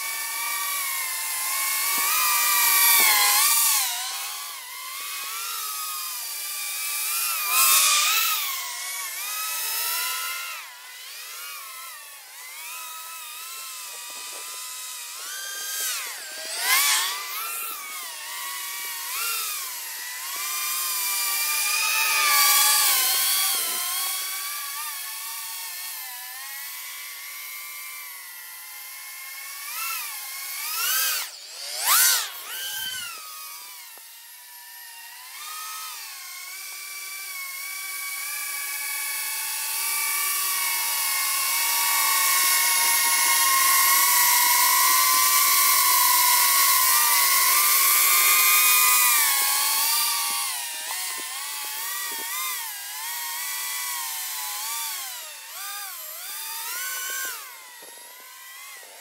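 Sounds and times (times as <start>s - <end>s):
quadcopter propellers whining: 0.0s - 59.0s.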